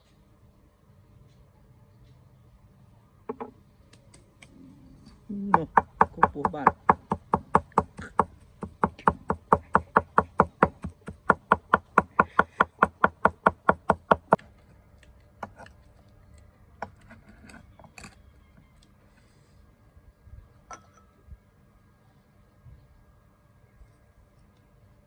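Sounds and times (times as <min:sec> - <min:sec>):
cleaver chopping on wooden block: 0:05.4 - 0:14.4.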